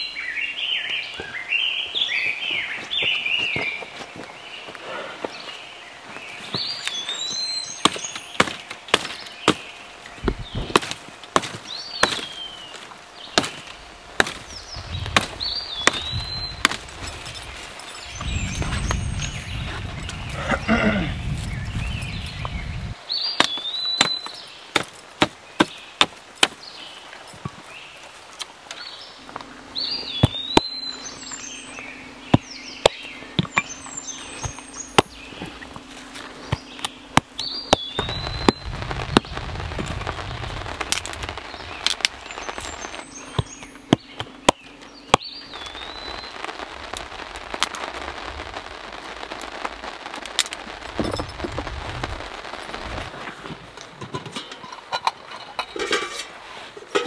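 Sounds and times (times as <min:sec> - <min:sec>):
bird singing: 0:00.0 - 0:47.0
dry sticks snapping: 0:06.8 - 0:19.4, 0:30.2 - 0:48.3, 0:49.0 - 0:53.0.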